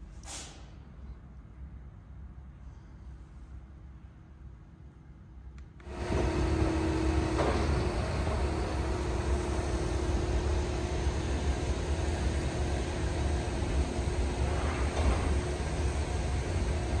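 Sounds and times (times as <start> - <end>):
heavy machinery rumble: 5.9 - 17.0.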